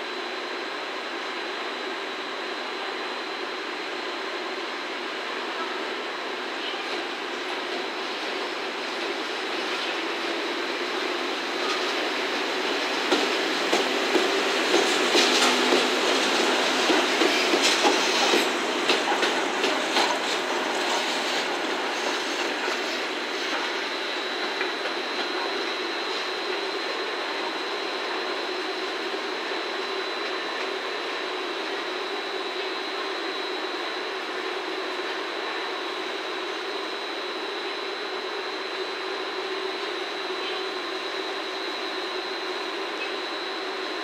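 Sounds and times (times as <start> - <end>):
train wheels clacking over rail joints: 13.0 - 22.9.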